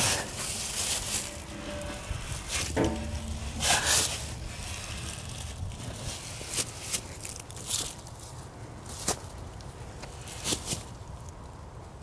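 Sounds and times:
metal scraping: 0:00.0 - 0:06.5
footsteps in dry leaves: 0:00.0 - 0:09.4
metal clank with ringing: 0:00.9 - 0:05.2
light metal knocks: 0:01.2 - 0:04.4.

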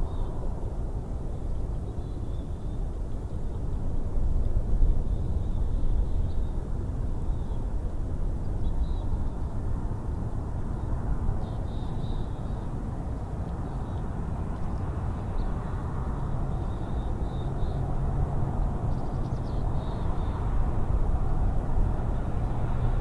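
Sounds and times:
low rumble of wind: 0:00.0 - 0:23.0.

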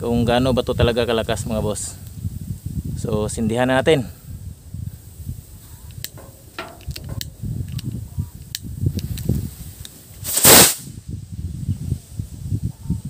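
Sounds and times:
sharp crackles and pops: 0:05.0 - 0:11.0
rocket launching with rushing hiss: 0:09.0 - 0:11.3.

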